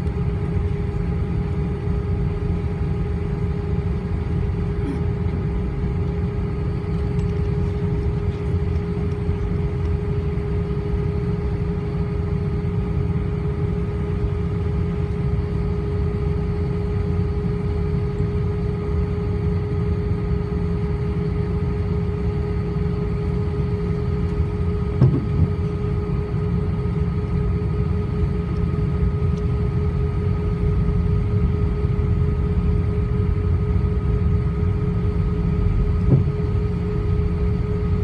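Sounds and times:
aircraft cabin rumble: 0.0s - 38.0s
engine hum: 0.0s - 38.0s
brief thump: 25.0s - 25.5s, 36.1s - 36.3s.

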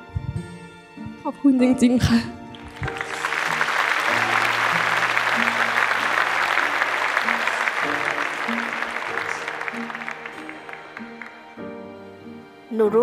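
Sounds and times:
soft background music: 0.0s - 13.0s
audience applauding: 2.5s - 11.9s.

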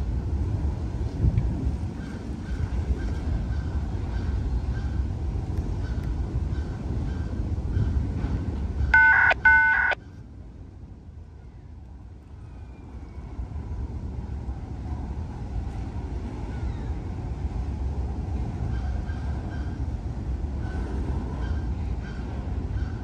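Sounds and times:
freight train rumbling past: 0.0s - 23.0s
short loud horn beeps: 9.0s - 10.0s.

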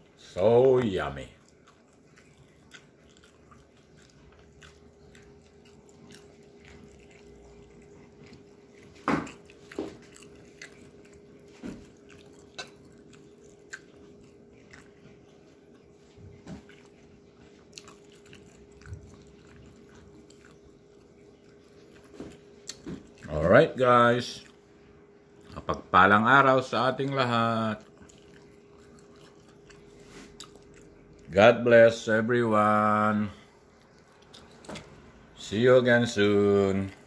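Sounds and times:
crunchy spring rolls being chewed: 0.0s - 37.0s
steady low hum: 0.0s - 37.0s.

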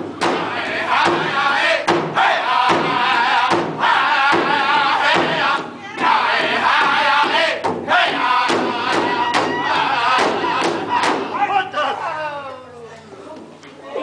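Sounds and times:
large hide drum beating: 0.0s - 11.6s
men singing in high voices: 0.3s - 11.4s.

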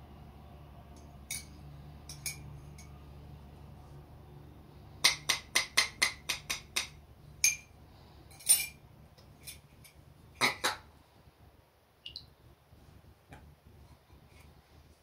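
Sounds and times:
spoon clinking in ceramic mug: 1.3s - 2.9s, 7.4s - 7.7s.

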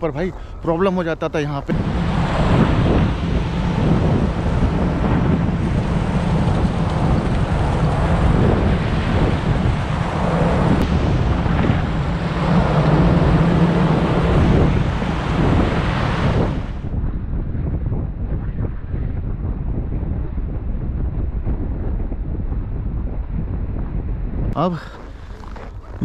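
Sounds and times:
wind noise on microphone: 0.0s - 26.0s
ice grinding along a hull: 24.6s - 26.0s.

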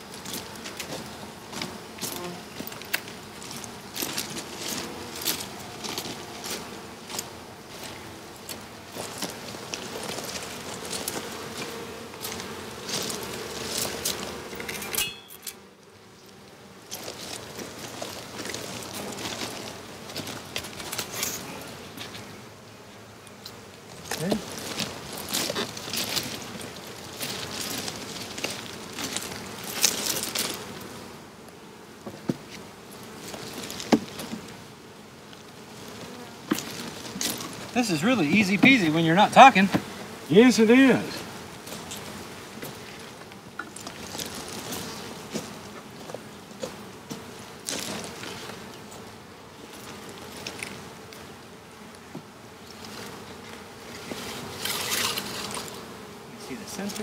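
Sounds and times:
bees buzzing: 0.0s - 57.0s
hive box knocks: 33.8s - 34.4s.

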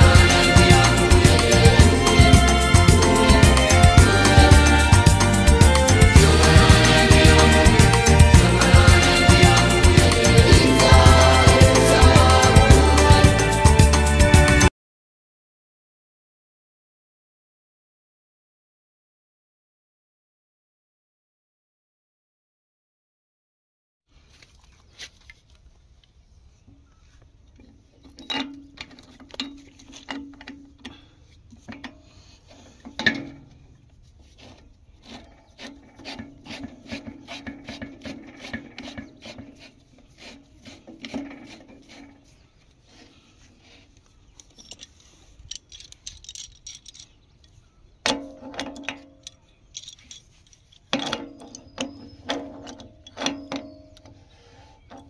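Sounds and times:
pipe threads scraping: 0.0s - 14.6s, 27.6s - 55.0s
small metal clicks: 44.0s - 54.2s
sharp metal knocks: 48.0s - 49.4s.

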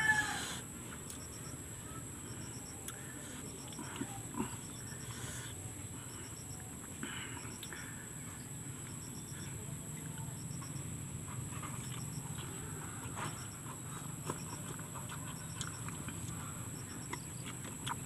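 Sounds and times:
insect chirps: 0.0s - 18.0s
insect drone: 0.0s - 18.0s
crunchy bite: 14.2s - 18.0s.

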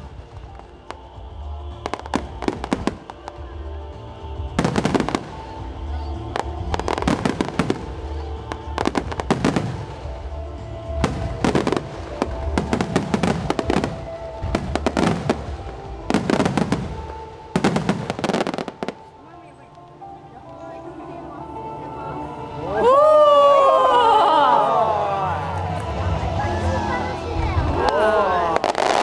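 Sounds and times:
fireworks bursting: 0.0s - 19.2s, 27.6s - 29.0s
music playing: 0.0s - 29.0s.

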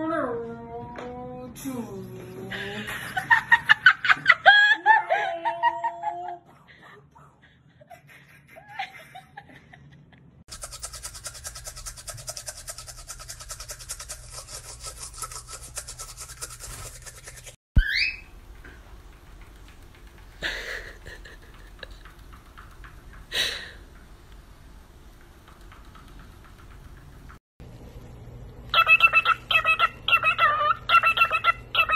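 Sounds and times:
toothbrush scrubbing teeth: 10.5s - 17.6s.

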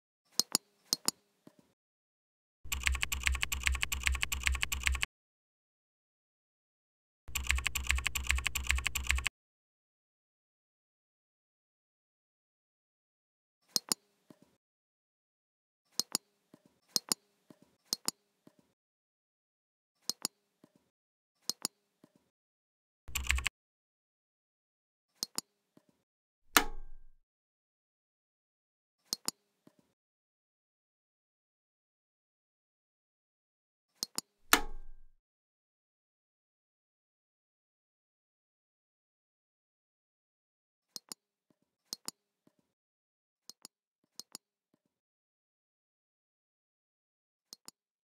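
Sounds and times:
typing on computer keyboard: 2.7s - 5.1s, 7.3s - 9.3s, 23.1s - 23.5s.

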